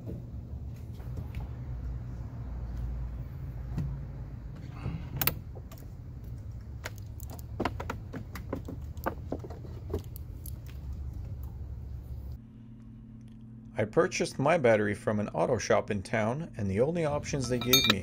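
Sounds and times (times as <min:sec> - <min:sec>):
steady low hum: 0:00.0 - 0:18.0
metal clamps clinking: 0:17.4 - 0:18.0.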